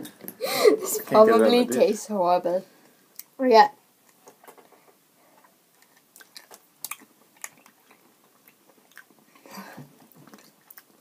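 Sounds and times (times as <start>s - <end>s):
mouth clicks and smacks chewing: 5.7s - 11.0s.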